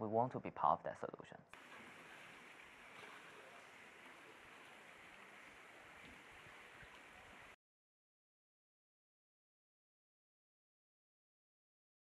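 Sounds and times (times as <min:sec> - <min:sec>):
shallow river water rushing: 0:01.6 - 0:07.6.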